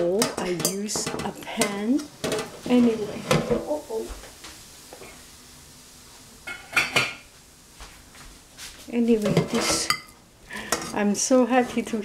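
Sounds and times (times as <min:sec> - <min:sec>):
metal utensil clinking on pan: 0:00.2 - 0:02.5.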